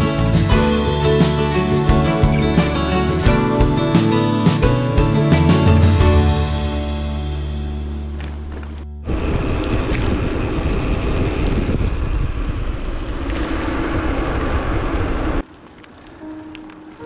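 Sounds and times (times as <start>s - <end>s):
background music: 0.0s - 9.1s
wind buffeting microphone: 9.0s - 16.1s.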